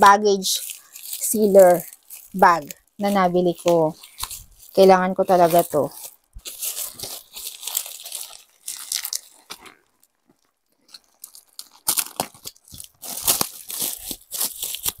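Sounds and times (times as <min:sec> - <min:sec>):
plastic packaging crinkling: 0:00.0 - 0:15.0
scissors cutting plastic: 0:10.9 - 0:15.0.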